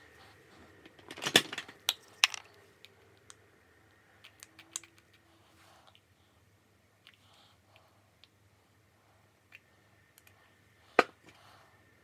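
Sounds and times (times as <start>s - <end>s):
small hard objects clattering: 1.0s - 2.6s.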